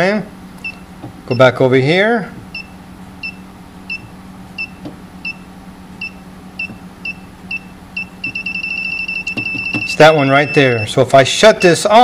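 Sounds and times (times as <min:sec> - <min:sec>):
low steady hum: 0:00.0 - 0:12.0
short high beeps: 0:06.0 - 0:10.9.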